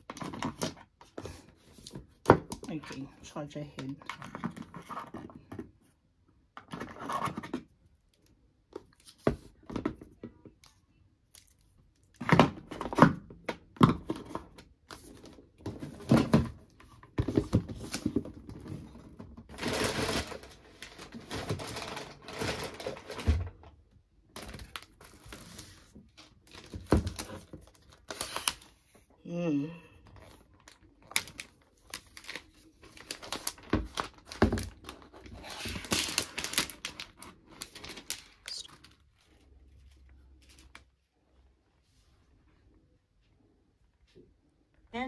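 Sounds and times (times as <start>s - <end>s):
cardboard and paper rustling: 11.4s - 23.7s, 24.3s - 29.1s, 30.0s - 41.0s.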